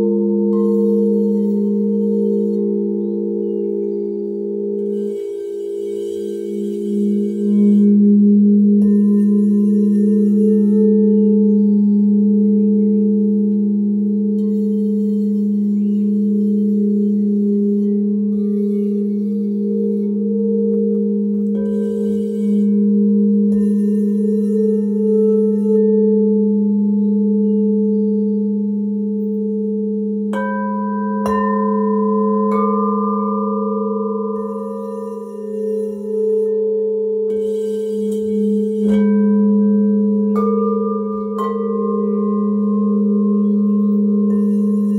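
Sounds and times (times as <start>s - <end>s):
crystal singing bowls ringing: 0.0s - 44.9s
singing bowl strikes: 0.0s - 44.9s.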